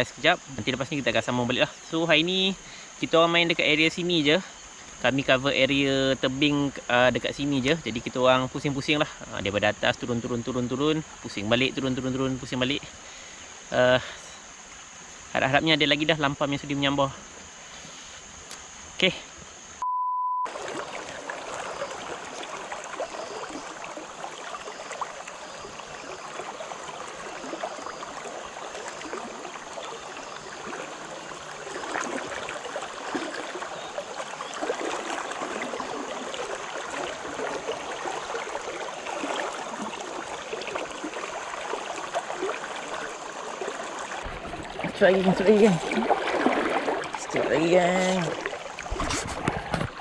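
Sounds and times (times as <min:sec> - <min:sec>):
test-tone beep: 0:19.8 - 0:20.5
river current rushing: 0:20.5 - 0:50.0.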